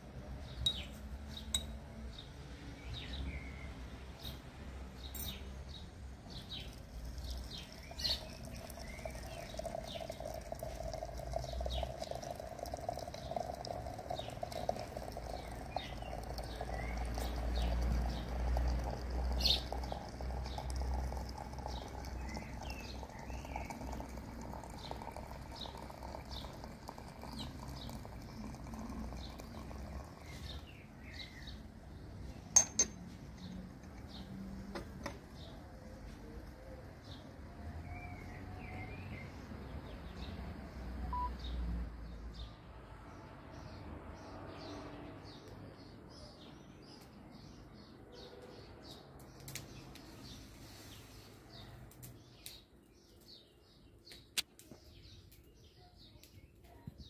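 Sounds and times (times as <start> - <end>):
birds chirping: 5.0 - 40.3, 41.1 - 42.5
water pouring into a teapot: 6.3 - 30.8.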